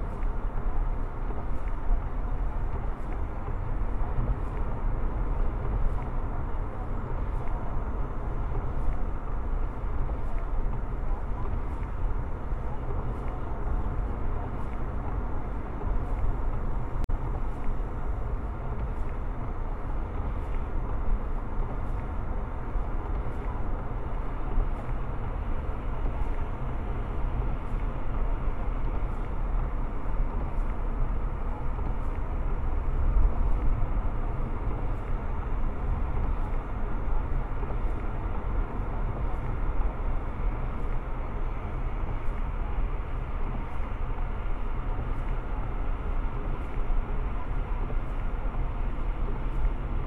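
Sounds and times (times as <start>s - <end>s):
engine and tyre drone in car: 0.0s - 50.0s.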